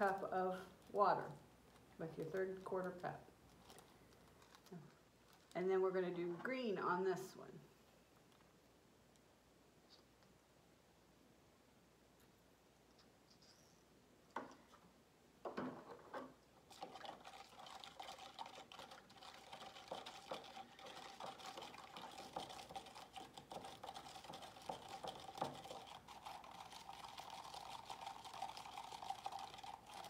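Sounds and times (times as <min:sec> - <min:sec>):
spoon stirring in plastic cup: 0:16.7 - 0:30.0.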